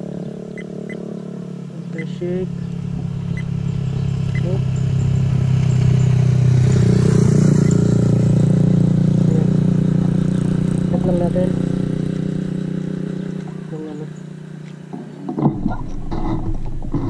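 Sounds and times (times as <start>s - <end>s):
motorcycle engine idling: 0.0s - 15.2s
motorcycle passing: 0.0s - 17.0s.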